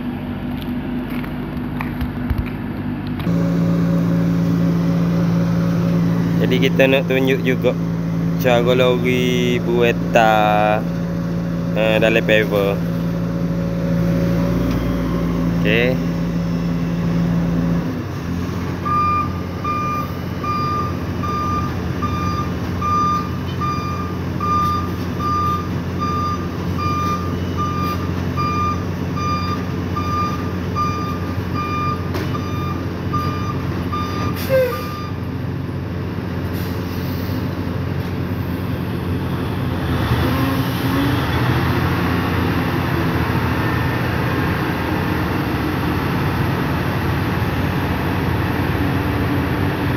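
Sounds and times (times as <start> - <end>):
diesel engine running: 0.0 - 49.9
reversing alarm beeping: 18.8 - 35.2.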